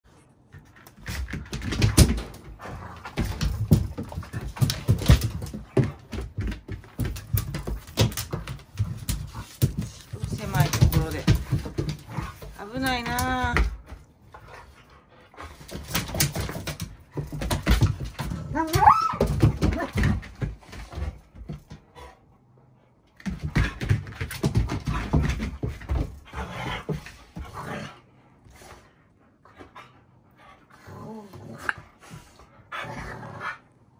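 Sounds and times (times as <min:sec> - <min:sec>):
dogs growling and vocalising: 0:00.4 - 0:33.9
paws scuffling on floor: 0:00.5 - 0:22.2.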